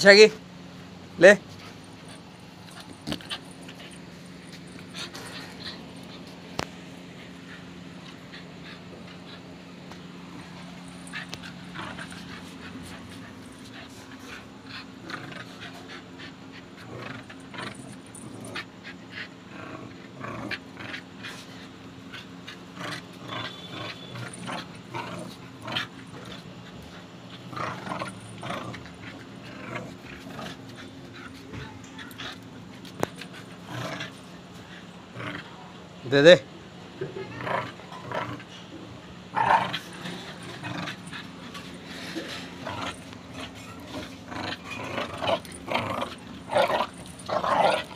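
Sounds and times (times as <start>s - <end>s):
steady low hum: 0.0s - 47.9s
puppy scuffling on concrete: 1.4s - 14.7s, 22.3s - 34.9s, 39.4s - 47.9s.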